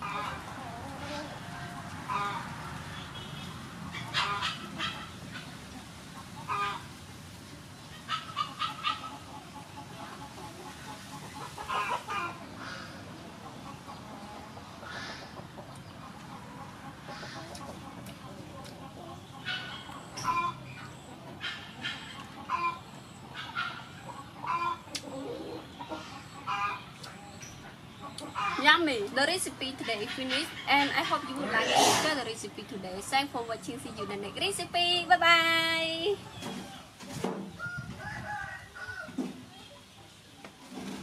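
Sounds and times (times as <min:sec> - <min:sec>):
poultry calling: 0:00.0 - 0:05.6, 0:06.2 - 0:06.9, 0:07.9 - 0:32.8
chickens clucking: 0:00.0 - 0:41.0.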